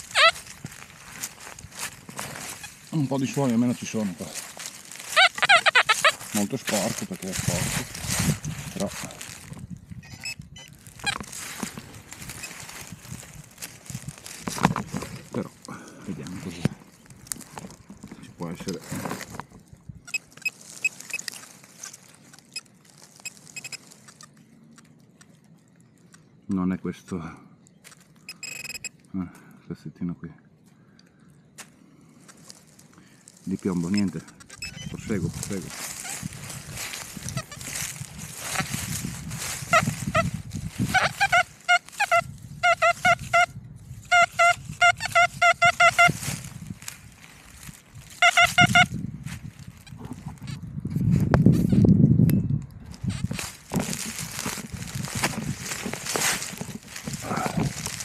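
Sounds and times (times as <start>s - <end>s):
metal detector beeping: 0.0s - 0.6s, 2.2s - 9.2s, 10.0s - 13.0s, 20.0s - 24.4s, 28.2s - 29.0s, 33.5s - 46.5s, 48.1s - 49.0s.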